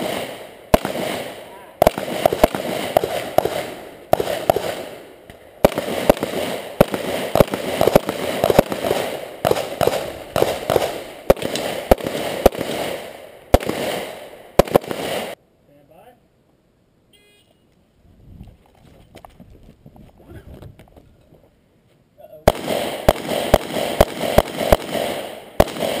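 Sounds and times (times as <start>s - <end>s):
pistol shots: 0.0s - 15.4s, 22.5s - 26.0s.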